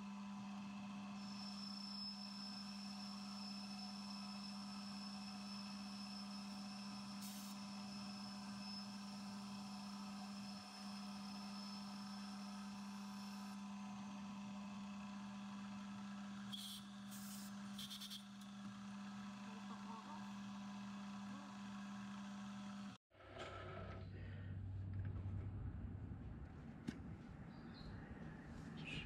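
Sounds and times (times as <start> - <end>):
metal lathe humming: 0.1 - 23.0.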